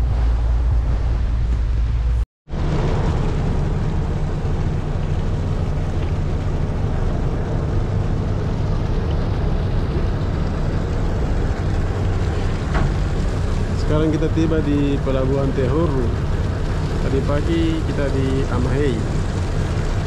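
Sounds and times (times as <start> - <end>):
wind noise: 0.0 - 14.0
ship engines droning: 0.0 - 20.0
water wash: 0.0 - 20.0.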